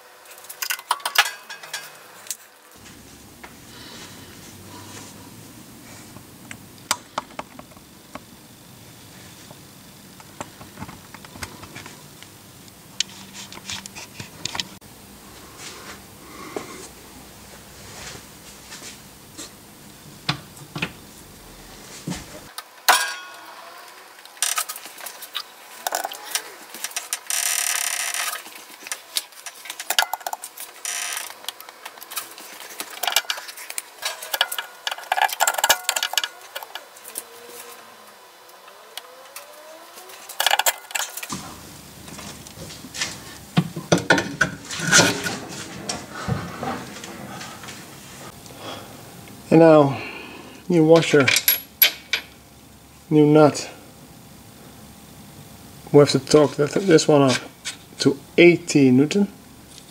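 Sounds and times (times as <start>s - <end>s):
hand tools clinking on metal: 0.5s - 2.1s.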